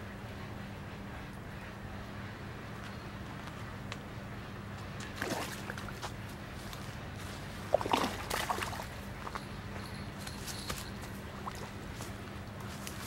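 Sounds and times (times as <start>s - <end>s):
fish splashing in water: 5.1s - 6.2s, 7.6s - 9.4s.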